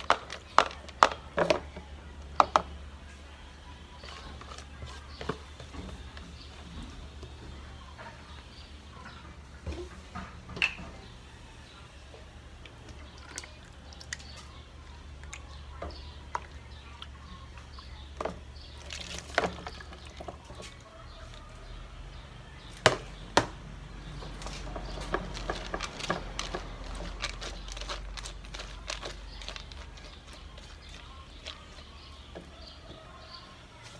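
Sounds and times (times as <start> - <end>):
water trickling through colander: 12.6 - 21.5
wet seeds rattling in strainer: 18.6 - 20.6, 24.3 - 32.8.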